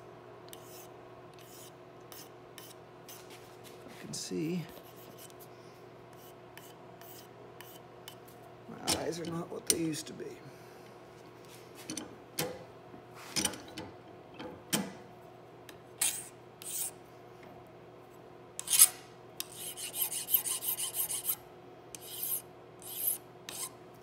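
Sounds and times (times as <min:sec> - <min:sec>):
hand file scraping metal: 0:18.6 - 0:21.4, 0:22.0 - 0:23.8.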